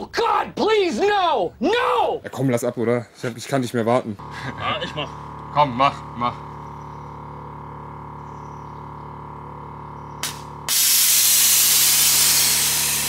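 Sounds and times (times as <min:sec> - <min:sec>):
low hum: 0:04.2 - 0:13.0
loud air hiss: 0:10.3 - 0:13.0.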